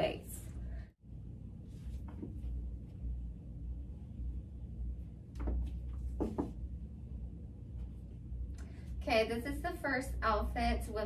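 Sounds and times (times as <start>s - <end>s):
steady low rumble: 0.0s - 11.0s
soft knocks or rustles: 5.4s - 6.7s.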